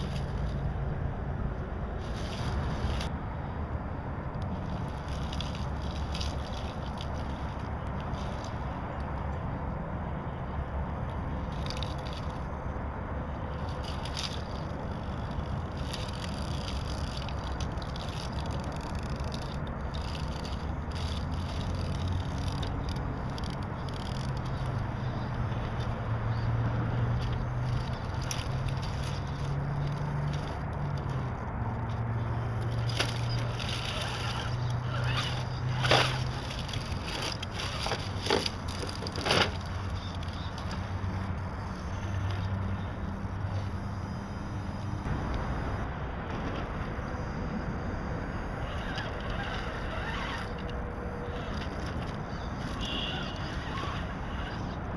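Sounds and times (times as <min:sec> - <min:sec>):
toy truck scraping on rocks: 0:00.0 - 0:01.0, 0:01.9 - 0:03.2, 0:04.4 - 0:09.3, 0:10.9 - 0:45.1, 0:47.0 - 0:54.9.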